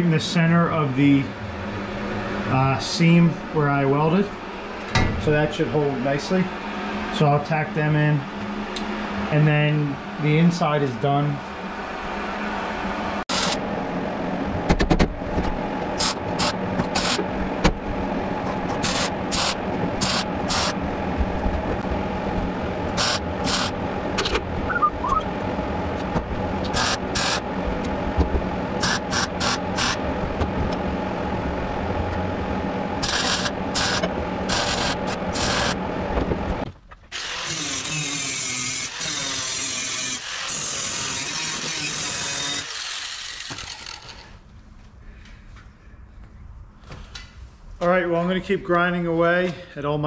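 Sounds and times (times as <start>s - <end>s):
steady hum: 0.0s - 50.0s
steady tool noise: 13.2s - 13.6s, 16.0s - 17.3s, 18.4s - 20.8s, 22.9s - 24.4s, 26.1s - 30.0s, 33.0s - 36.3s, 37.1s - 44.4s
welder crackling bursts: 28.8s - 30.0s, 33.0s - 35.8s.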